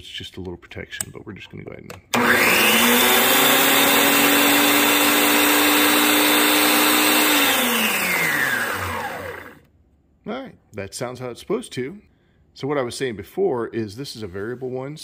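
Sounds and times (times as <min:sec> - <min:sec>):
band saw motor running: 0:02.2 - 0:09.6.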